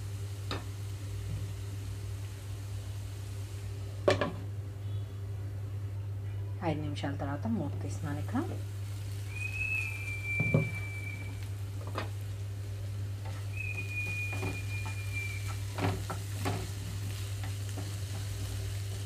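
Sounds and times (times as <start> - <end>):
light sizzling: 0.0 - 19.0
steady low hum: 0.0 - 19.0
high whistle-like tone: 9.3 - 11.4, 13.4 - 15.6.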